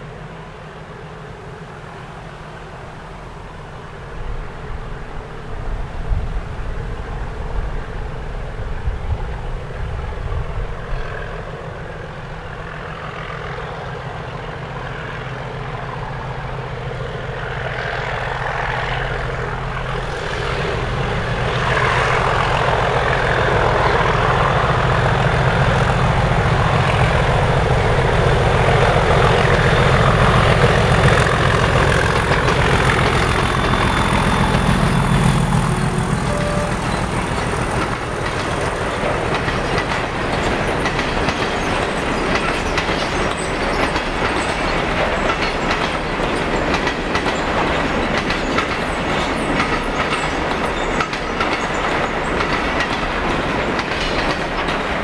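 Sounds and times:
diesel locomotive engines under power: 0.0 - 55.0.

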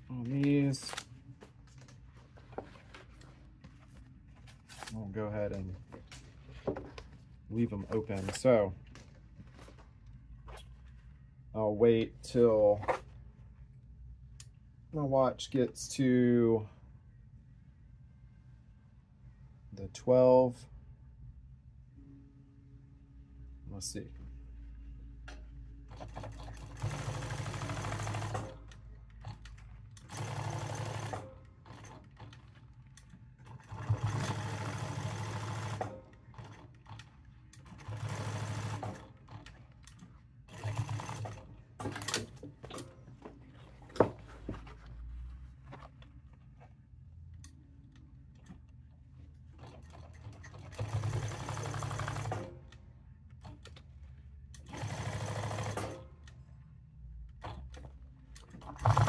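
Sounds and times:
handling noises: 0.0 - 11.2, 41.6 - 46.8
sewing machine stitching: 33.4 - 39.6, 49.6 - 52.5, 54.6 - 56.0, 57.4 - 59.0.

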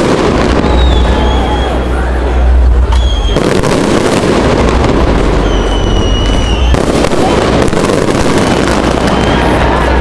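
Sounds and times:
sharp firework bangs: 0.0 - 1.9, 2.7 - 10.0
crowd voices: 0.0 - 10.0
fireworks crackling and rumbling: 0.0 - 10.0
high thin whistles: 2.9 - 3.5, 5.4 - 6.8.

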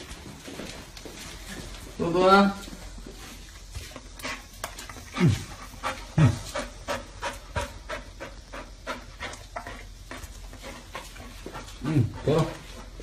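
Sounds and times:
dog panting: 3.2 - 13.0.

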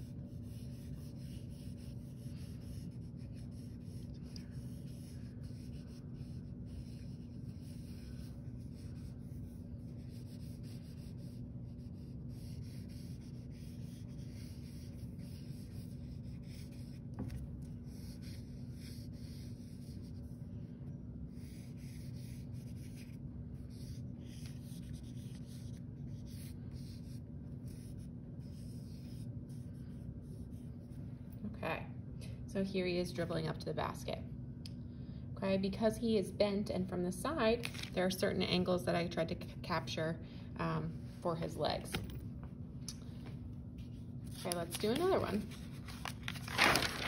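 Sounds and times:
charcoal scratching on paper: 0.0 - 20.4, 21.3 - 30.9
steady low hum: 0.0 - 47.0.

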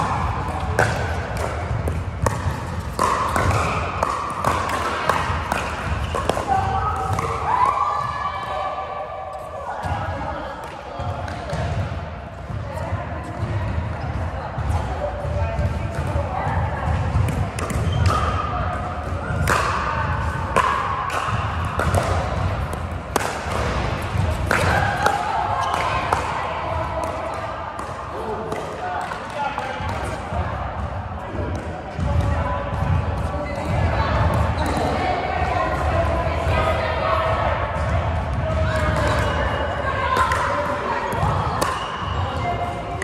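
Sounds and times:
paddles hitting plastic ball: 0.0 - 7.8, 17.2 - 18.4, 19.3 - 30.2
ball bouncing on court: 0.0 - 8.6, 9.8 - 43.0
paddles striking plastic ball: 0.5 - 7.4.

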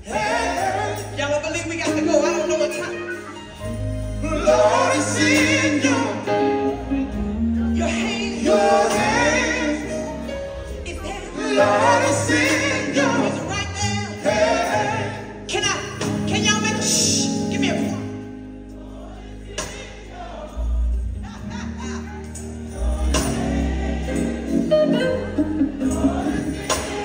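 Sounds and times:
gospel band playing: 0.0 - 27.0
lead singer: 4.0 - 15.6.

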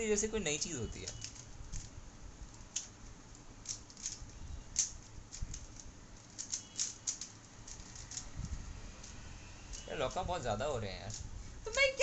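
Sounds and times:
plastic puzzle cube clicking: 1.0 - 1.9, 2.5 - 8.3.

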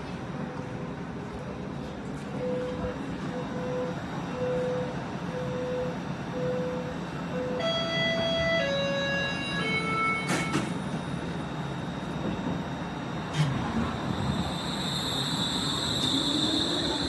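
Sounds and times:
low train hum: 0.0 - 17.0
train doors knocking shut: 10.0 - 10.8.

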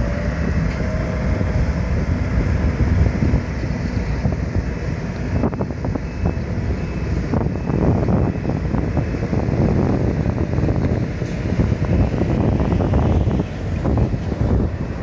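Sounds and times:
diesel engine running: 0.0 - 15.0
wind buffeting microphone: 0.0 - 15.0.

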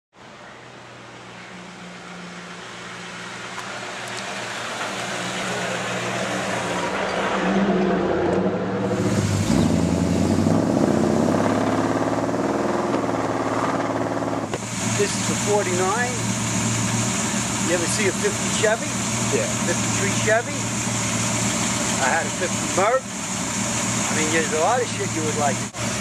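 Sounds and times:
pickup truck engine running: 8.4 - 26.0.

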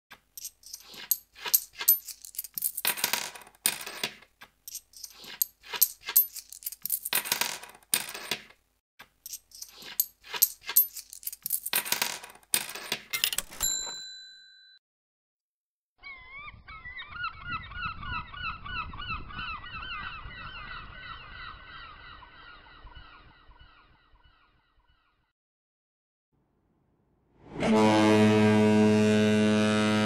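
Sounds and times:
coins clattering and jingling: 0.3 - 8.5, 9.2 - 14.0.

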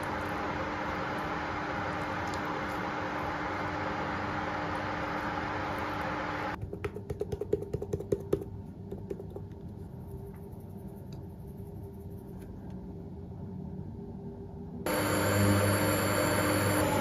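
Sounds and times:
plastic shaker clicks and taps: 6.6 - 10.0.

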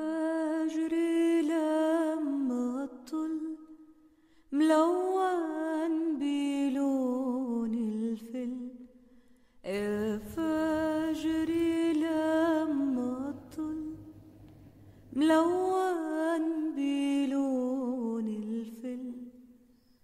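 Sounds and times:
person singing slow song: 0.0 - 9.0, 9.6 - 20.0.

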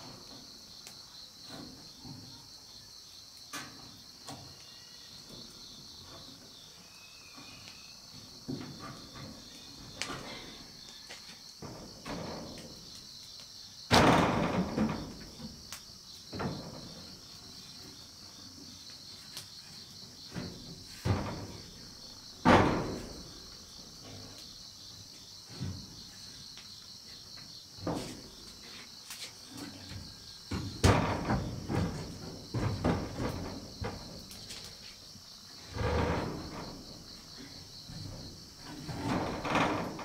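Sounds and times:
insects chirring: 0.0 - 40.0
thuds and knocks: 13.9 - 15.6, 16.3 - 17.2, 20.3 - 24.4, 29.9 - 34.3.

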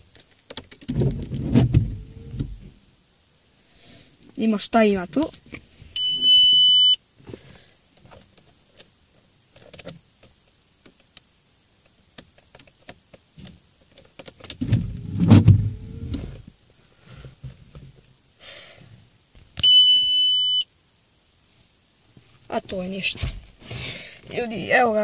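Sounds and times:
low motor whir: 1.0 - 2.8, 14.6 - 16.4
dashboard warning beep: 6.0 - 7.0, 19.6 - 20.7.

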